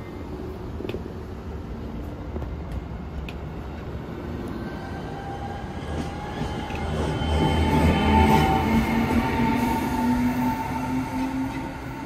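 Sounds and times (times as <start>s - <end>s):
train rumble: 0.0s - 12.0s.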